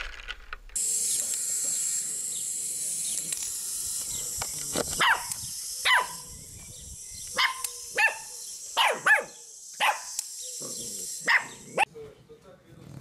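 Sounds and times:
puppy yipping: 0:11.2 - 0:11.9.

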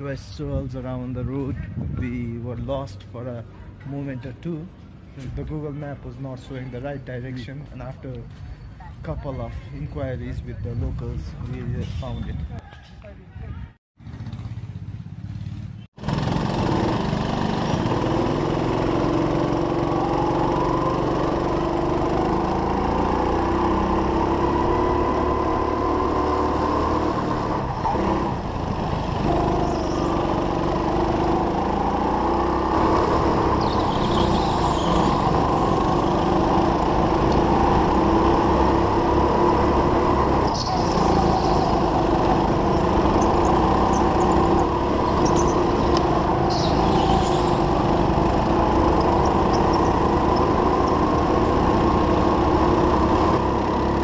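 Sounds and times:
go-kart engine revving: 0:16.0 - 0:54.0.

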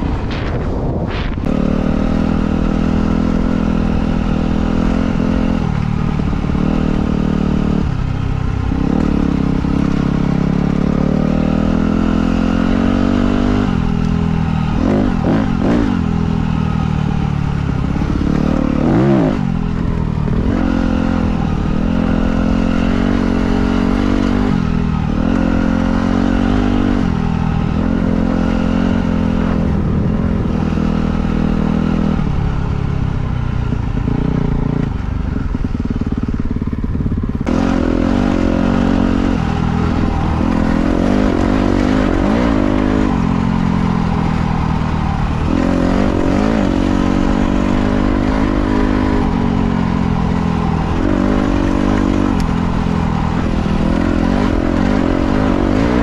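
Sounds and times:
dirt bike engine revving: 0:00.0 - 0:32.8, 0:33.6 - 0:56.0.

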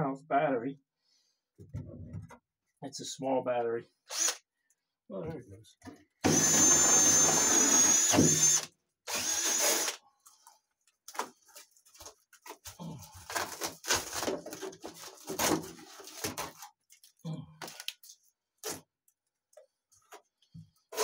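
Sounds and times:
cordless drill motor whining: 0:04.1 - 0:04.4, 0:06.2 - 0:10.0.

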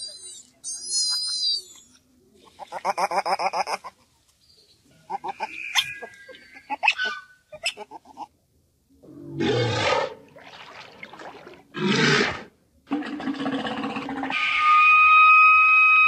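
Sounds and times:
walrus bellowing: 0:09.0 - 0:10.3
steady high whistle: 0:14.4 - 0:16.0.

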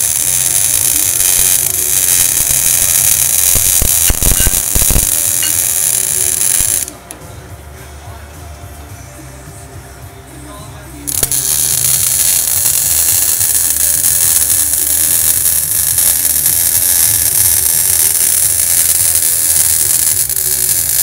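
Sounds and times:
welding arc hissing: 0:00.0 - 0:07.0, 0:11.1 - 0:21.0.

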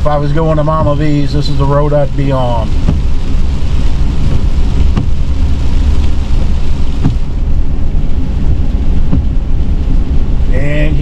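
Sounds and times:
windshield wiper knocks: 0:00.0 - 0:10.0
tyre hiss on wet road: 0:00.0 - 0:11.0
vehicle road and engine rumble: 0:00.0 - 0:11.0.

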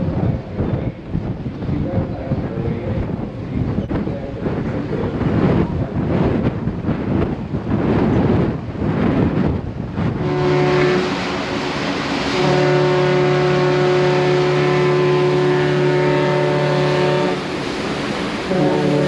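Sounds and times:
wind buffeting microphone: 0:00.0 - 0:19.0
ship whistle blasts: 0:10.2 - 0:17.6, 0:18.4 - 0:19.0.

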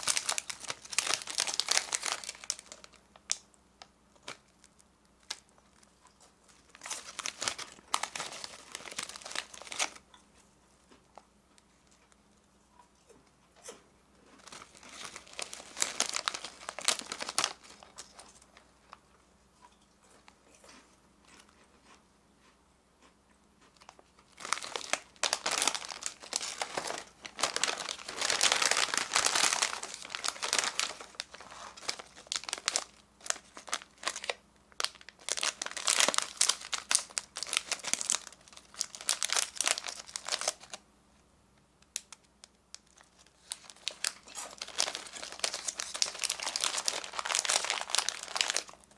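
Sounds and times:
plastic wrappers crinkling: 0:00.0 - 0:03.5, 0:04.1 - 0:10.1, 0:14.3 - 0:19.0, 0:23.8 - 0:40.8, 0:41.9 - 0:48.9.

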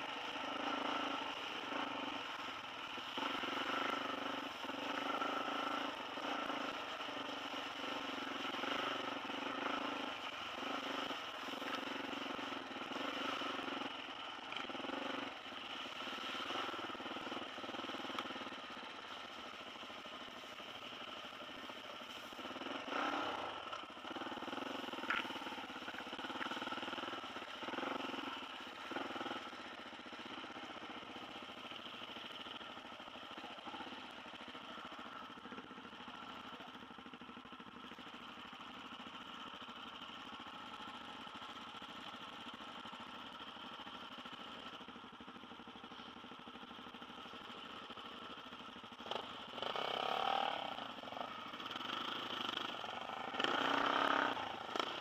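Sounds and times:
dirt bike engine running: 0:00.0 - 0:55.0.

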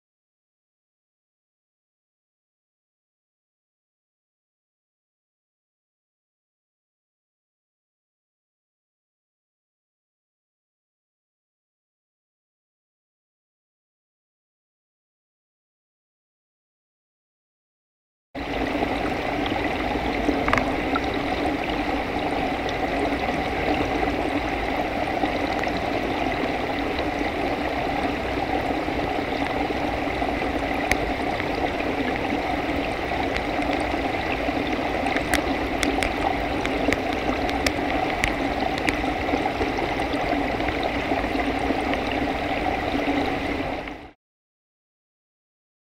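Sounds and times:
water rushing in tank: 0:18.4 - 0:44.2.

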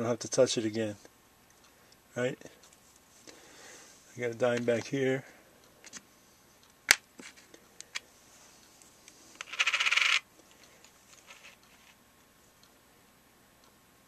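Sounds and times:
coin clicking on desk: 0:09.4 - 0:10.2
coin sliding scrape: 0:09.4 - 0:10.3, 0:11.1 - 0:12.0
light coin ticks: 0:09.4 - 0:11.9.

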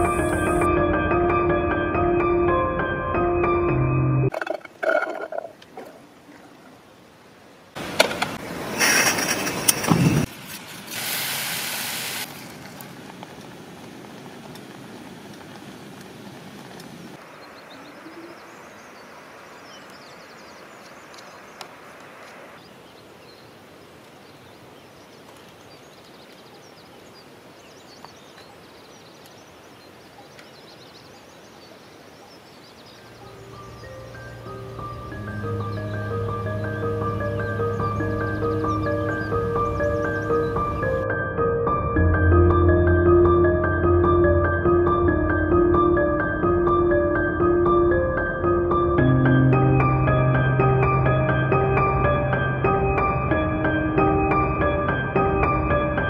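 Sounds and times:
quiet outdoor background: 0:00.0 - 0:56.0.

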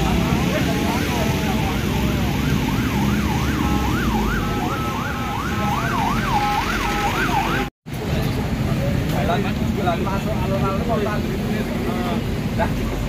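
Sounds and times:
traffic rumble: 0:00.0 - 0:13.0
emergency siren yelping: 0:01.0 - 0:07.7.

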